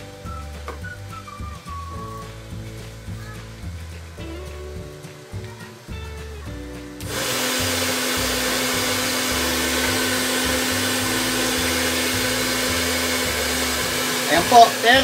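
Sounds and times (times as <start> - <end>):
hair dryer blowing: 7.0 - 15.0.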